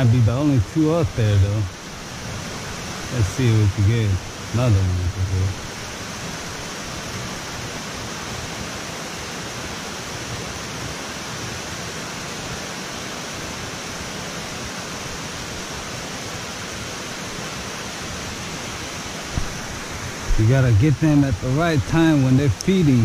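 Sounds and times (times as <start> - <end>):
water rushing through spillway: 0.0 - 23.0.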